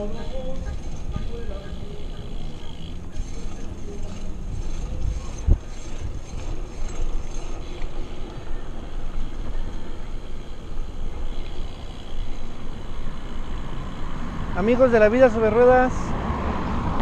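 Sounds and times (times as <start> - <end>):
bicycle road noise on concrete: 0.0 - 17.0
wind noise: 3.2 - 7.5.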